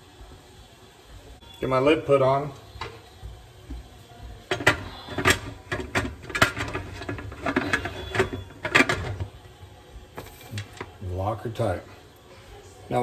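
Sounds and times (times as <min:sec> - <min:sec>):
metal lid clicking and clanking: 0:04.5 - 0:09.3.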